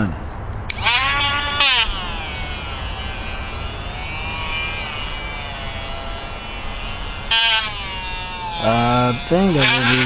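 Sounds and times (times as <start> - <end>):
rotary tool grinding rubber: 0.7 - 10.0.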